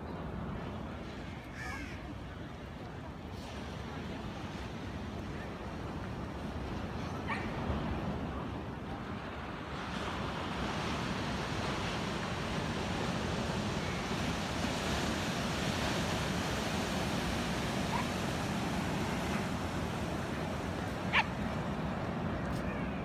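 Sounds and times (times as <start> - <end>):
ocean surf on sandy beach: 0.0 - 23.0.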